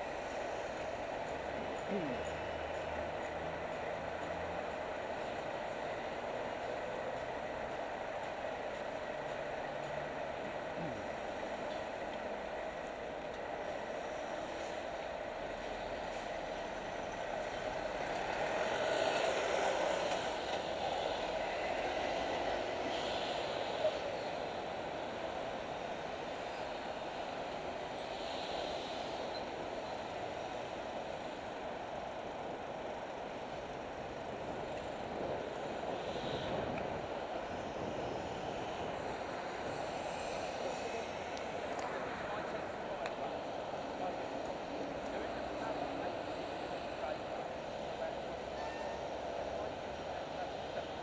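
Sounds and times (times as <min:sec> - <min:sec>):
road traffic: 0:00.0 - 0:51.0
wind rushing over microphone: 0:34.1 - 0:39.7.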